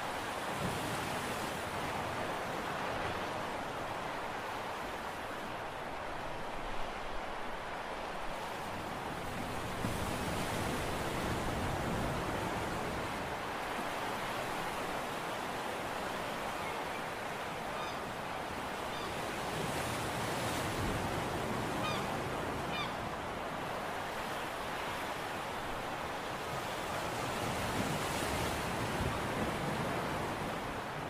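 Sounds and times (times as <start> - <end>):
sea waves: 0.0 - 31.0
wind: 0.0 - 31.0
faint bird calls: 16.6 - 18.1.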